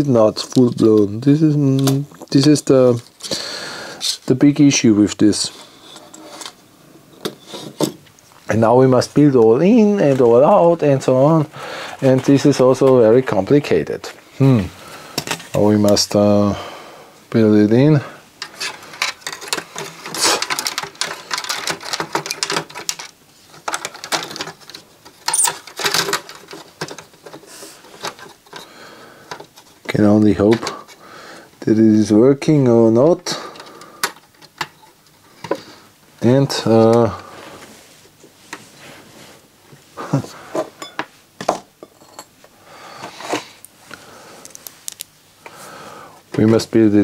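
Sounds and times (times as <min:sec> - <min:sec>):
circuit boards clicking and rattling: 0:18.4 - 0:29.9, 0:33.5 - 0:35.6
rustling: 0:36.5 - 0:41.3.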